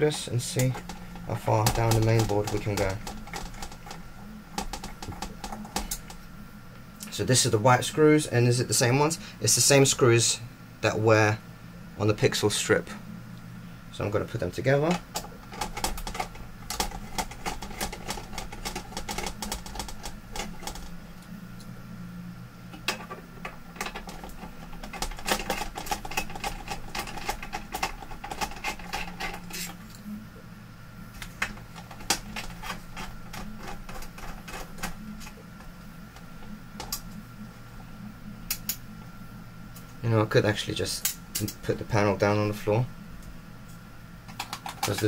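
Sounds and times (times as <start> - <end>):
steady low hum: 0.0 - 45.0
screws being handled: 22.9 - 30.0.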